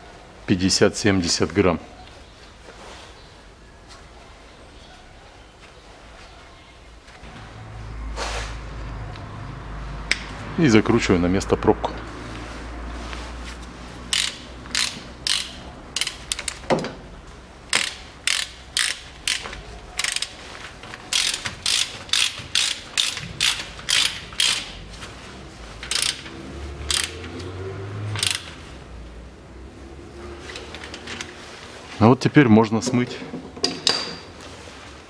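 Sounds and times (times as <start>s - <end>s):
socket ratchet clicking: 14.1s - 16.7s, 17.7s - 20.4s, 21.0s - 24.8s, 25.9s - 26.3s, 26.9s - 27.4s, 28.1s - 28.6s.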